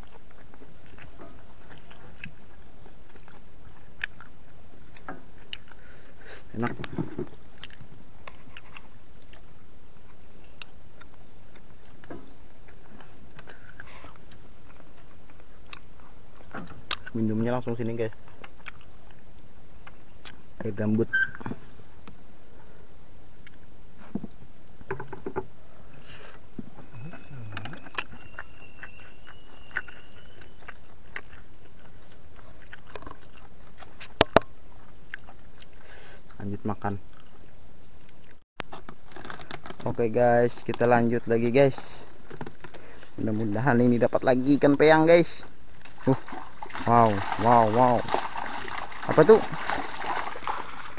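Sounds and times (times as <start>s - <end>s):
chewing crunches: 0.0s - 17.2s, 17.9s - 20.4s, 26.2s - 39.9s.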